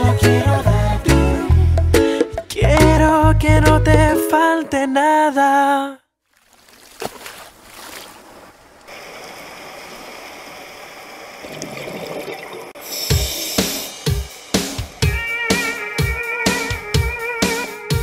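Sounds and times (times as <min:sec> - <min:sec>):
song with drums and guitar: 0:00.0 - 0:04.3, 0:12.9 - 0:18.0
music: 0:00.0 - 0:04.8, 0:12.9 - 0:18.0
underwater water hiss: 0:12.8 - 0:15.0.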